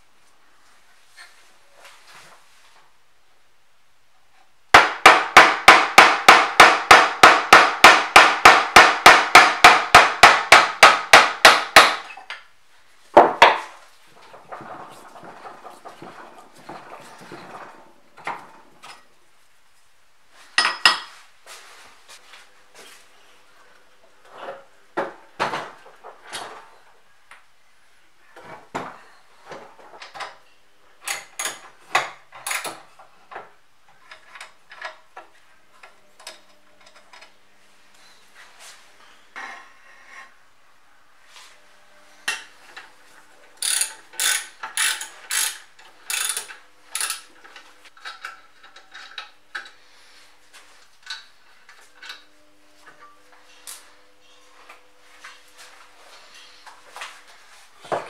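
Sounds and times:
ratchet wrench clicking: 0:43.6 - 0:47.2
metal parts knocking and clinking: 0:43.6 - 0:47.3.

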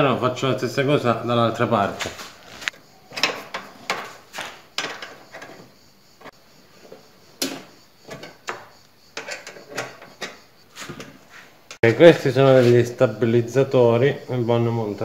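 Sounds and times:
spanner and bolts clicking on metal: 0:09.2 - 0:10.4.

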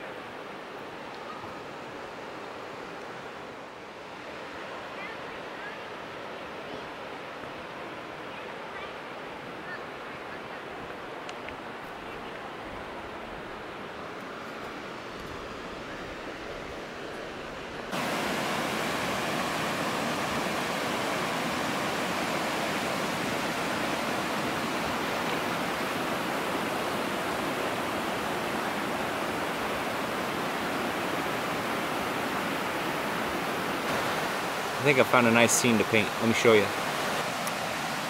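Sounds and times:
river rapids rushing over rocks: 0:09.2 - 0:38.0.

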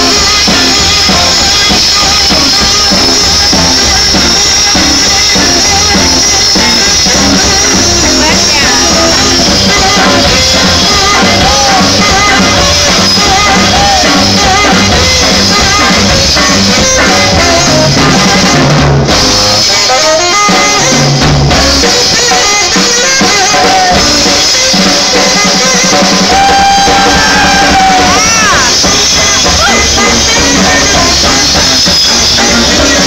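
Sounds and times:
drum kit: 0:00.0 - 0:33.0
tenor saxophone lead: 0:00.0 - 0:33.0
upright bass: 0:00.0 - 0:33.0.

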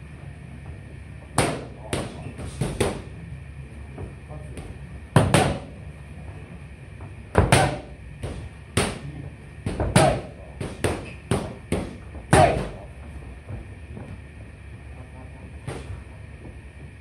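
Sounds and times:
boxing gloves hitting punch mitts: 0:07.4 - 0:12.8.

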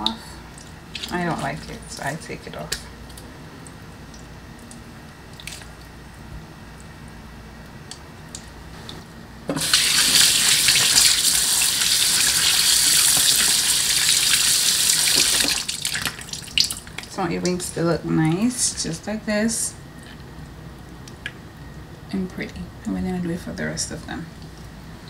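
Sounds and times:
water running into metal sink: 0:09.6 - 0:16.4.

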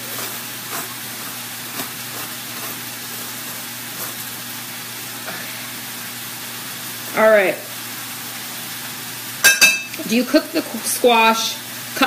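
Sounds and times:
fork scraping squash: 0:00.0 - 0:04.3.

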